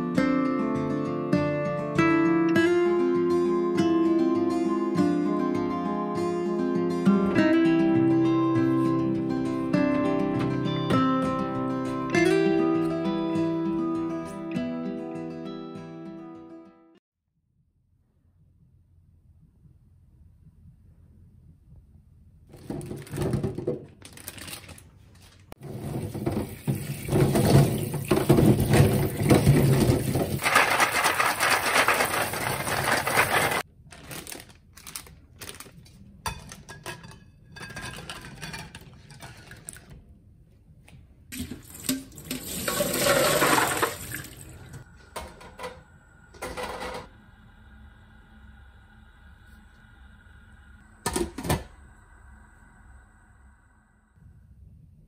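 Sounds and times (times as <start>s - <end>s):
tap water gushing into sink: 25.6s - 33.1s, 41.4s - 44.8s.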